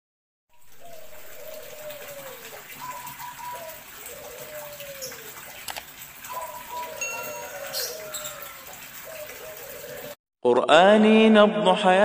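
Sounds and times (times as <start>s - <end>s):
dove cooing: 0.6s - 10.2s.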